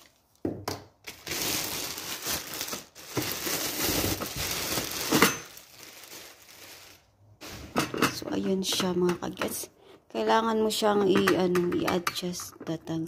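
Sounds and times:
plastic bags crinkling: 0.0 - 8.0.

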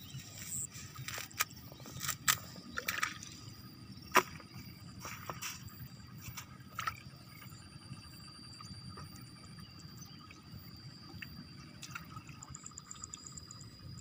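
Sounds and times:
water and mud sloshing: 0.1 - 7.6, 11.1 - 13.3.

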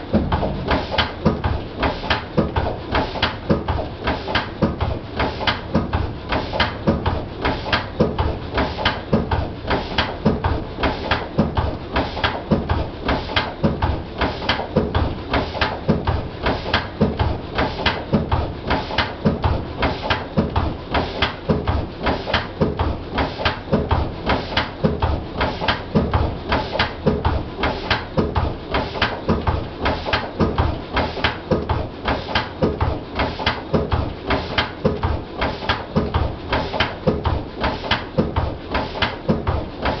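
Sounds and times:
diesel engine running: 0.0 - 1.0.

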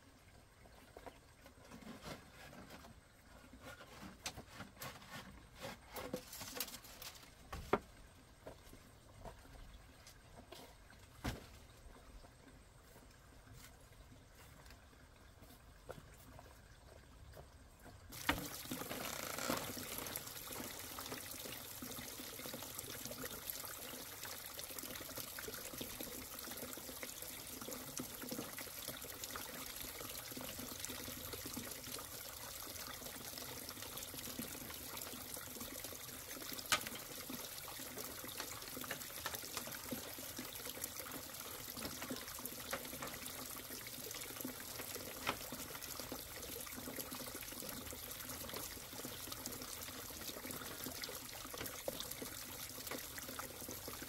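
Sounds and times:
running trickling water: 0.0 - 54.0.

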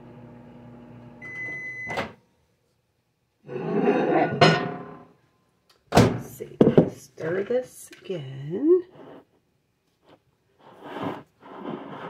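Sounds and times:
microwave beep: 1.2 - 2.2.

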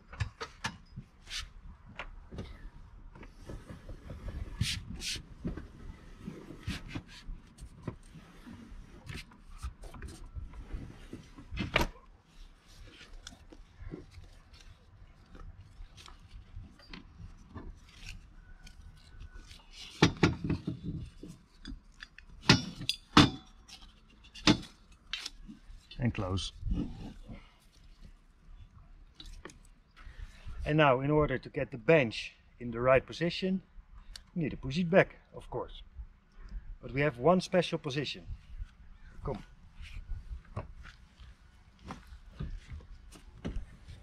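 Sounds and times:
strap and buckle rubbing: 12.4 - 26.0.

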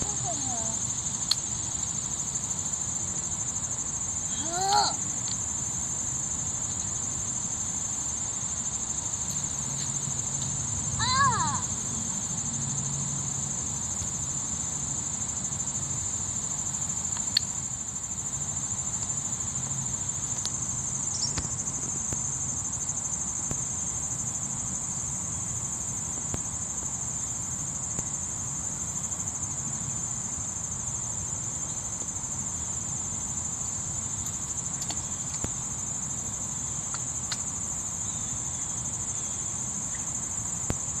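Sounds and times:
insects shrilling: 0.0 - 12.9, 14.4 - 24.0.

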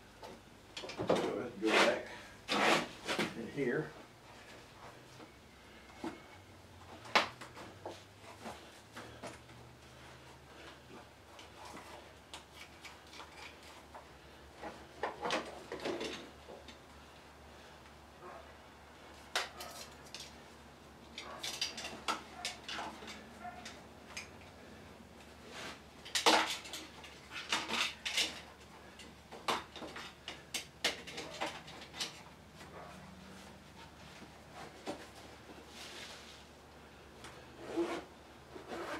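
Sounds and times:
metal tools clinking and clattering: 21.2 - 23.8.

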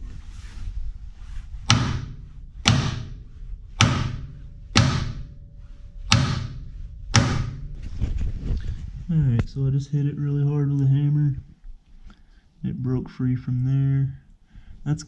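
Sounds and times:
hammer blows on steel: 1.5 - 8.2.

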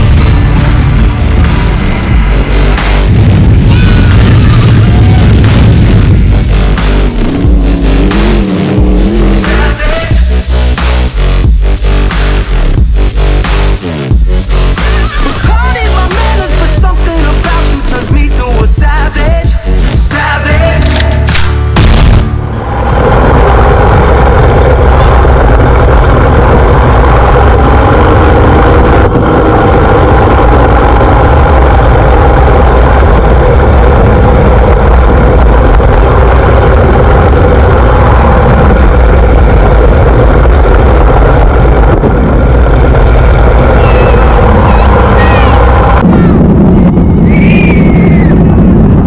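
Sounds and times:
wheels rumbling on concrete: 0.0 - 49.0.

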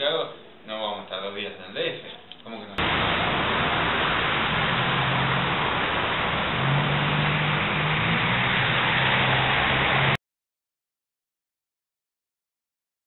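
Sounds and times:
low vehicle engine hum: 2.8 - 10.2
street traffic hiss: 2.8 - 10.2.

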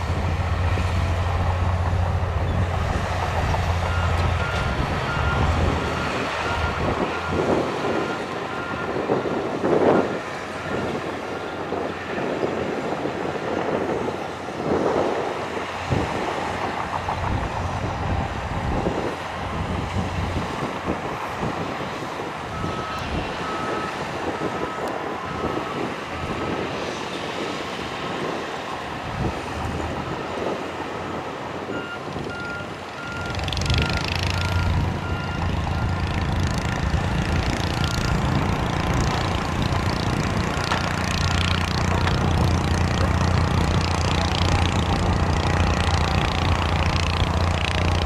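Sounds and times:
bulldozer diesel engines: 0.0 - 48.0
reversing alarm beeping: 3.7 - 11.6, 22.5 - 26.8, 30.0 - 42.4.

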